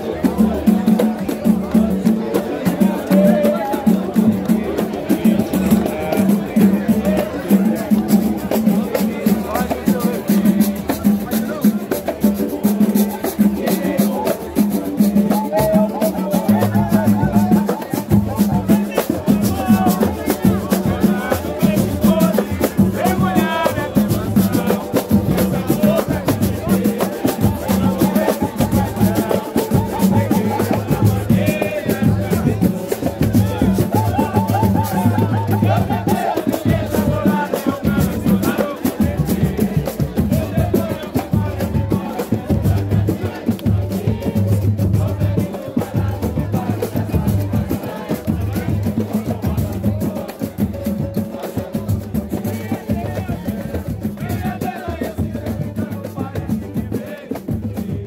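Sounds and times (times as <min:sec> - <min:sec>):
deep hand drum: 0:00.0 - 0:58.0
voices singing: 0:00.0 - 0:58.0
metal shaker: 0:04.8 - 0:51.0.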